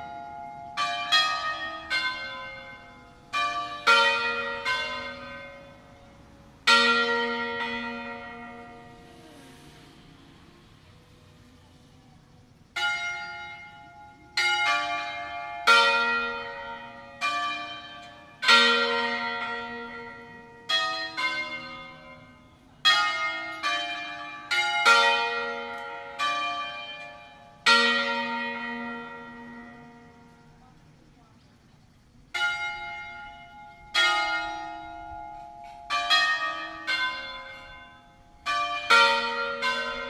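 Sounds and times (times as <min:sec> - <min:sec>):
church bells ringing: 0:00.0 - 0:11.5, 0:12.5 - 0:31.0, 0:32.3 - 0:40.0.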